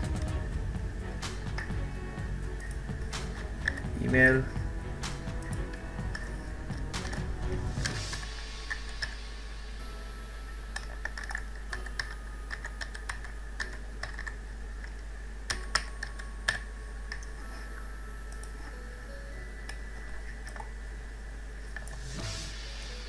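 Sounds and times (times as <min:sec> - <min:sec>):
steady low hum: 0:00.0 - 0:23.0
computer keyboard typing: 0:10.8 - 0:14.4.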